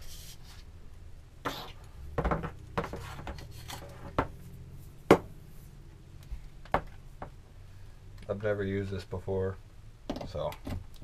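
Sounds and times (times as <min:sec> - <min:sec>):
low steady hum: 0:00.0 - 0:11.0
plastic handling clicks and knocks: 0:10.1 - 0:10.9.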